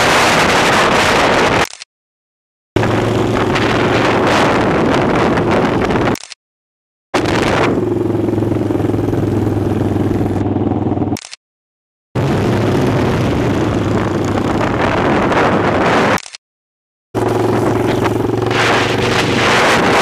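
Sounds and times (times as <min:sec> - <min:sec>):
motorcycle engine running: 0:02.8 - 0:06.1, 0:07.2 - 0:11.3, 0:12.3 - 0:15.7, 0:17.2 - 0:20.0.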